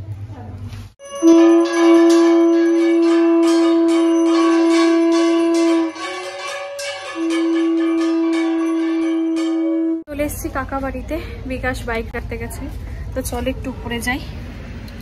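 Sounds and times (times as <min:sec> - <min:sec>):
bell ringing quickly: 0:01.0 - 0:10.1
conch shell blown: 0:01.0 - 0:10.1.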